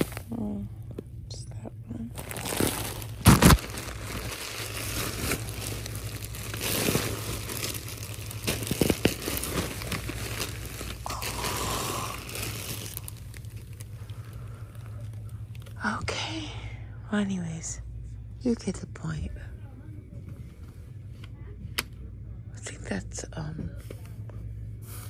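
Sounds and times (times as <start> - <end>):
plastic packaging crinkling: 2.1 - 15.8.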